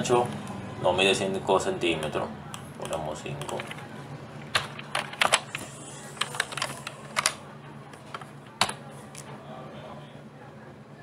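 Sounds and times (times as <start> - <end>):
keyboard keys clicking: 2.8 - 3.8, 4.4 - 5.6, 6.2 - 7.4.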